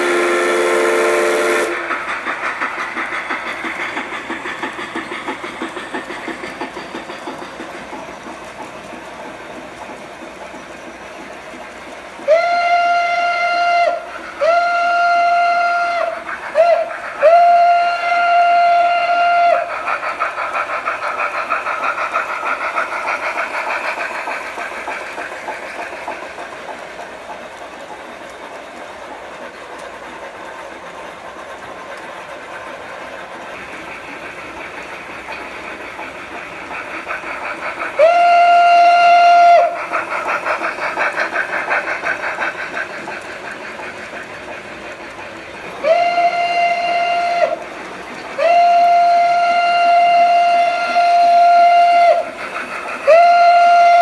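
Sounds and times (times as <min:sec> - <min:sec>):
multi-tone train whistle: 0:00.0 - 0:02.1, 0:12.2 - 0:20.1, 0:37.9 - 0:40.4, 0:45.8 - 0:54.0
model steam locomotive chuffing: 0:00.0 - 0:54.0.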